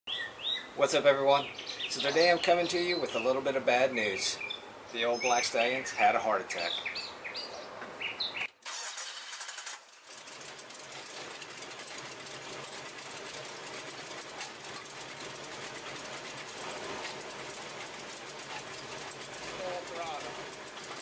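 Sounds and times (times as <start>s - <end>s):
engine knocking: 9.2s - 21.0s.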